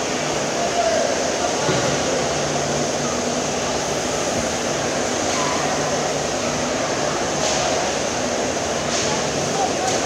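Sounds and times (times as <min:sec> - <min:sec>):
murmur of distant voices: 0:00.0 - 0:10.0.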